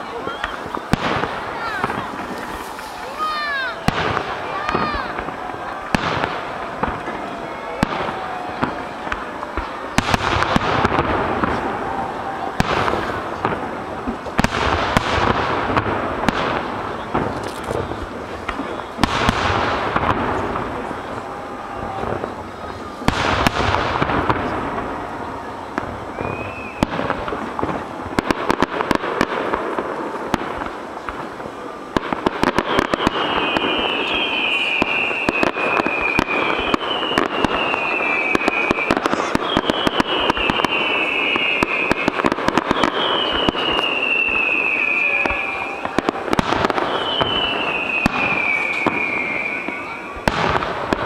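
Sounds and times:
firework booms echoing: 0:00.0 - 0:51.0
fireworks crackling: 0:00.0 - 0:51.0
firework whistles falling in pitch: 0:00.2 - 0:01.0, 0:20.4 - 0:28.6, 0:32.0 - 0:50.7.

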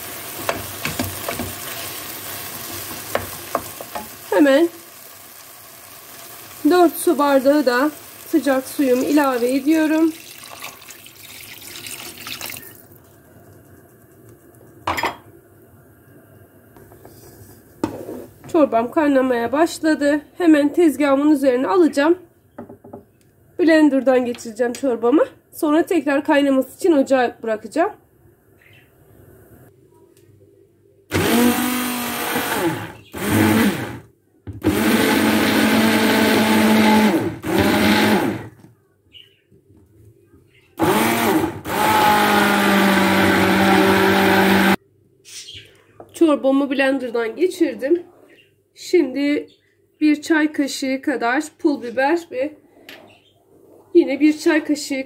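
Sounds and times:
hot water pouring into pot: 0:00.0 - 0:13.9.

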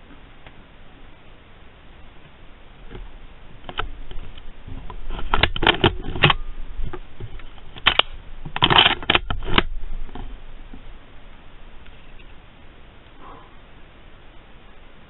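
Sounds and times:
rustling and crackling clicks: 0:02.2 - 0:13.4.

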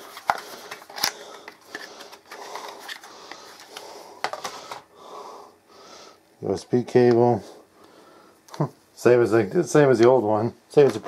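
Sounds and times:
packaging rustling and scraping: 0:00.0 - 0:04.8.

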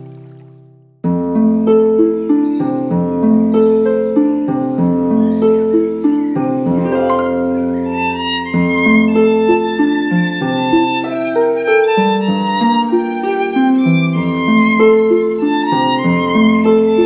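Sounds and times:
plucked string accompaniment: 0:01.0 - 0:17.0
violin melody: 0:05.1 - 0:17.0.

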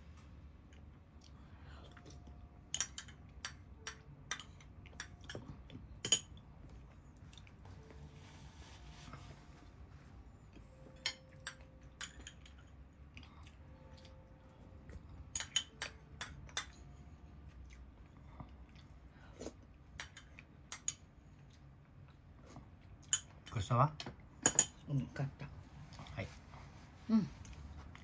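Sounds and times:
low room hum: 0:00.0 - 0:28.0
metal spoon clinking on ceramic: 0:15.3 - 0:16.8.

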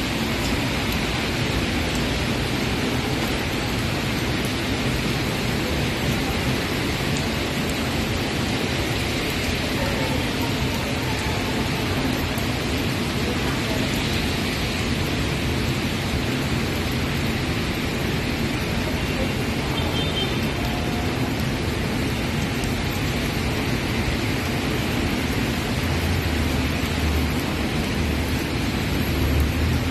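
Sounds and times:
heavy rain on a wet street: 0:00.0 - 0:29.9.

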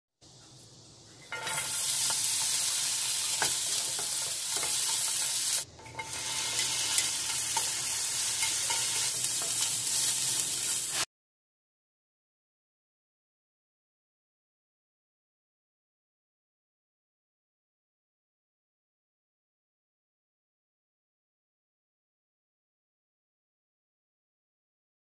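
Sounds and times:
vegetables sizzling in hot oil: 0:00.3 - 0:11.1.

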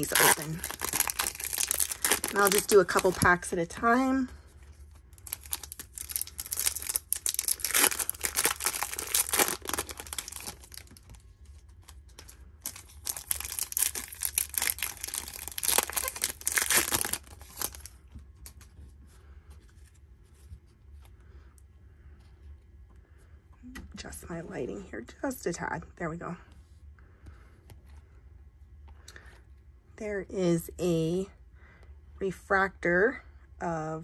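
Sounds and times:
foil wrappers tearing and crinkling: 0:00.0 - 0:03.5, 0:05.1 - 0:11.2, 0:11.8 - 0:17.9
faint handling of cards: 0:00.0 - 0:24.0, 0:26.4 - 0:29.8.

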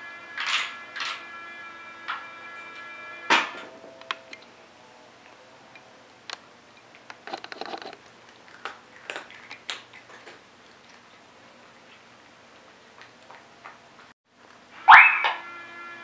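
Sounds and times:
cat crunching dry treats: 0:07.0 - 0:12.0.

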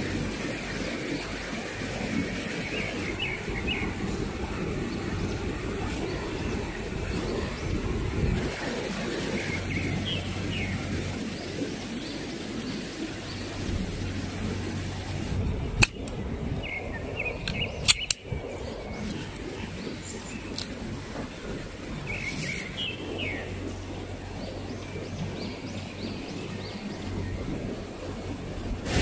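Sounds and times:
birds chirping: 0:00.0 - 0:29.0
stream water rushing: 0:00.0 - 0:29.0
tent poles snapping together: 0:15.8 - 0:16.2, 0:17.5 - 0:18.2.

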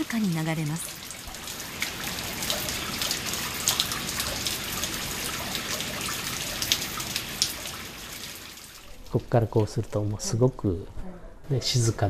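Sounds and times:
water dripping: 0:00.0 - 0:10.7
waterfall splashing on rock: 0:00.1 - 0:09.0.

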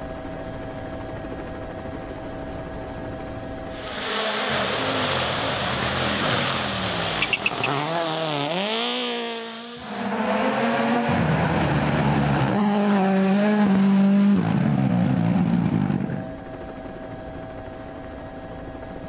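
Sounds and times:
rally car engines at full throttle: 0:03.7 - 0:16.3
car passing at high revs: 0:03.8 - 0:16.2.

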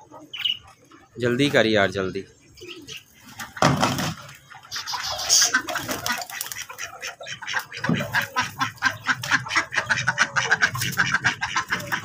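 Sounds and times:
chickens clucking: 0:00.0 - 0:12.0
ducks quacking: 0:00.0 - 0:12.0.

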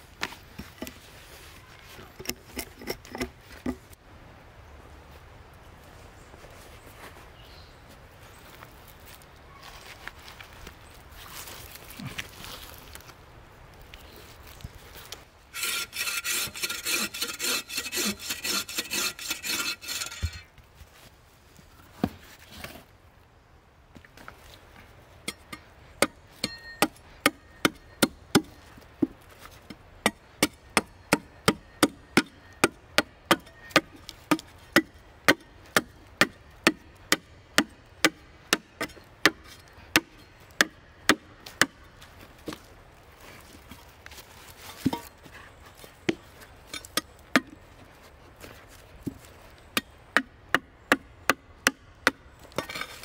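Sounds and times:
rasping strokes on wood: 0:15.6 - 0:20.5
shovel blade chopping wood: 0:15.6 - 0:20.5, 0:29.7 - 0:41.8.

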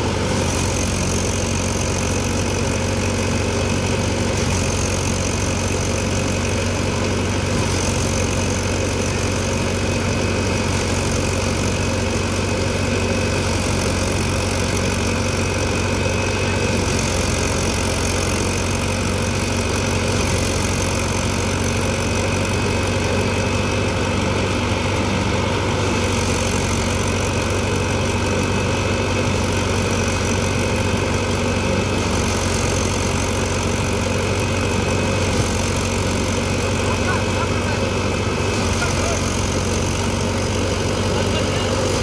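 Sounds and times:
thresher drum and blower whirring: 0:00.0 - 0:42.0
tractor diesel engine running: 0:00.0 - 0:42.0.

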